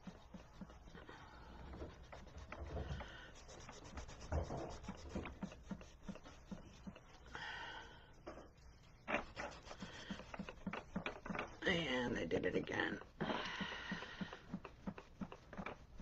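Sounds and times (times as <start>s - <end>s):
pen scratching on paper: 0.0s - 7.2s, 9.0s - 11.6s.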